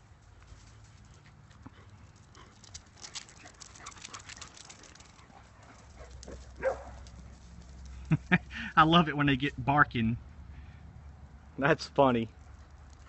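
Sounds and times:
dog paws on concrete: 0.0s - 8.5s, 12.3s - 13.0s
dog barking: 6.0s - 7.0s.

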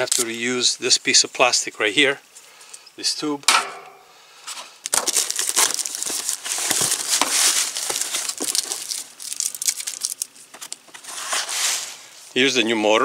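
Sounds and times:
packing crinkling and crackling: 4.8s - 12.3s
cardboard box being handled: 5.0s - 12.0s.

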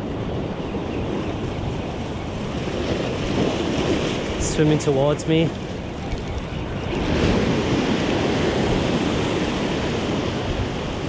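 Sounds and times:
ocean surf washing against rocks: 2.4s - 11.0s.

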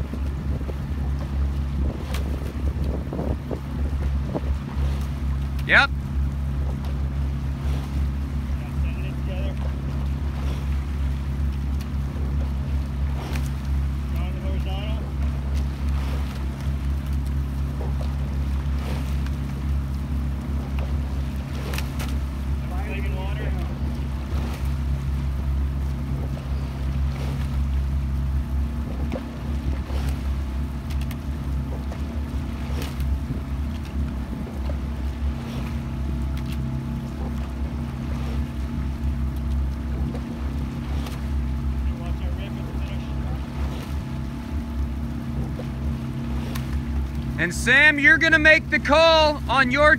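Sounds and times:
wind on microphone: 0.0s - 5.3s
outboard motor running: 0.0s - 49.9s
water noise: 0.0s - 49.9s
faint clicks: 30.8s - 31.2s.

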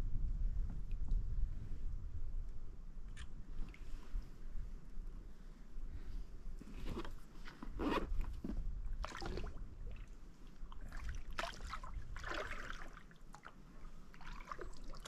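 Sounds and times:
water sloshing along kayak hull: 9.0s - 15.0s.

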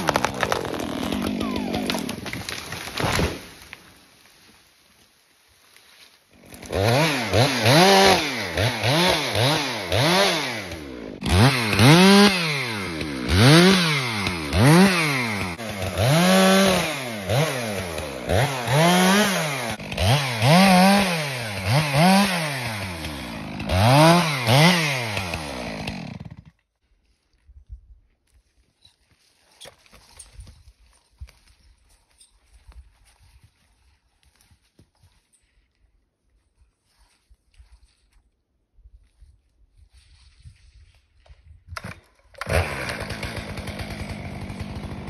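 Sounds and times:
chainsaw revving while cutting wood: 0.0s - 2.4s, 6.4s - 26.5s, 41.8s - 45.0s.

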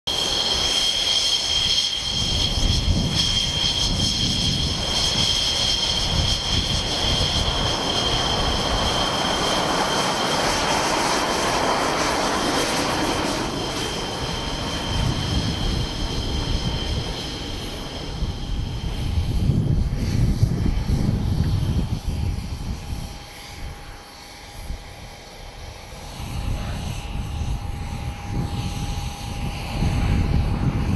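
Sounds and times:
jet engines high whine: 0.1s - 30.9s
jet exhaust rushing: 0.1s - 30.9s.

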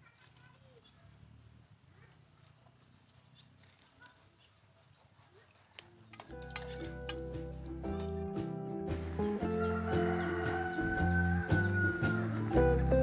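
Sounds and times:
background music: 6.2s - 13.0s.

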